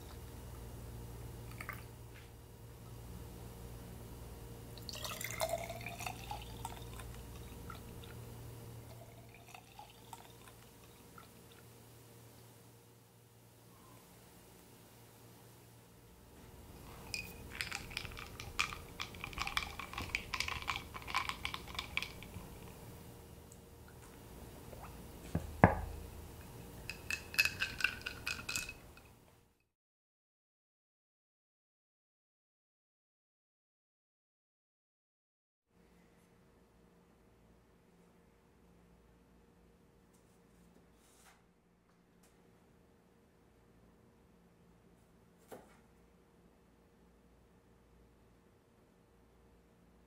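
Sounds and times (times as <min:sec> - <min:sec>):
lemonade pouring into jar: 0:04.8 - 0:08.2, 0:08.8 - 0:11.3, 0:17.0 - 0:22.8, 0:26.9 - 0:28.8
straw clinking against glass: 0:17.0 - 0:22.4, 0:26.9 - 0:28.8
knock on glass jar: 0:25.3 - 0:25.9.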